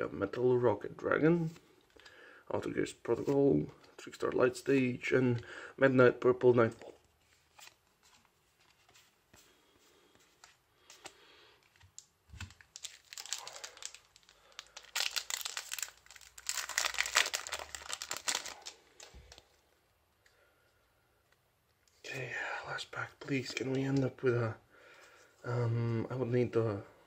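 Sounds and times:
faint clicks of cards: 10.1 - 12.5
foil wrapper crinkling and tearing: 12.0 - 19.6.

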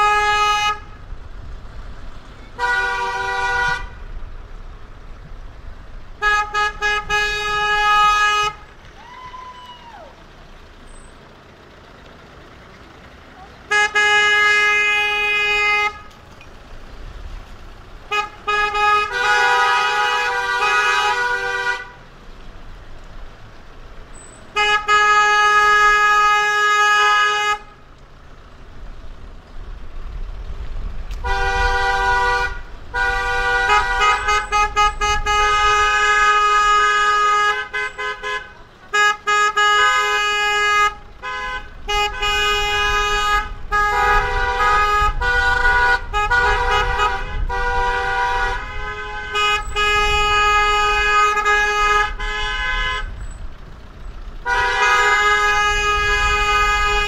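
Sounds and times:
car horns honking: 0.0 - 1.2, 2.2 - 4.3, 6.0 - 10.0, 13.4 - 16.6, 17.8 - 22.2, 24.0 - 28.4, 31.1 - 57.0
low rumble of road traffic: 0.0 - 57.0.

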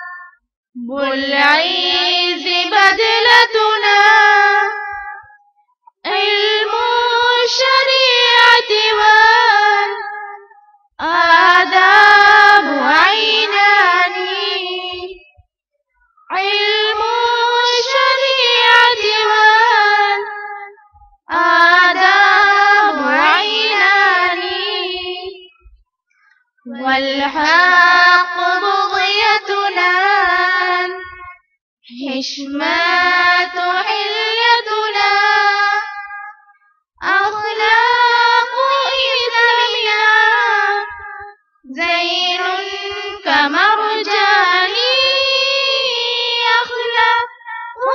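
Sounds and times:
person singing unaccompanied: 0.0 - 15.4, 16.2 - 25.8, 26.6 - 36.3, 37.0 - 47.9.

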